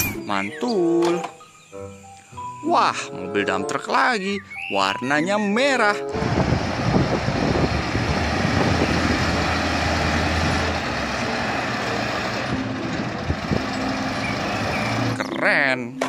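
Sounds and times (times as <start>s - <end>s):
broad rushing noise: 6.1s - 13.6s
truck diesel engine under load: 6.1s - 15.3s.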